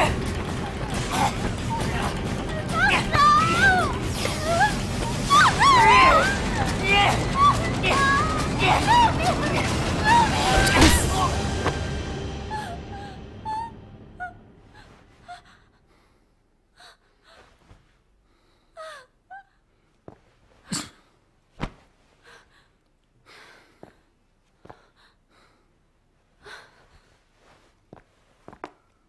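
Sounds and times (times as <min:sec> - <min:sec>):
woman moaning: 0:00.0 - 0:11.8.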